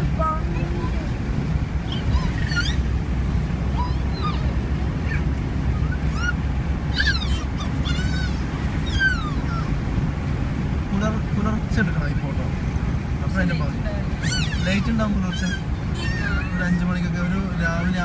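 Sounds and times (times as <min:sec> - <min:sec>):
car road and engine rumble: 0:00.0 - 0:18.0
high squeaky chirps: 0:01.9 - 0:03.0, 0:03.7 - 0:09.8, 0:14.2 - 0:16.8.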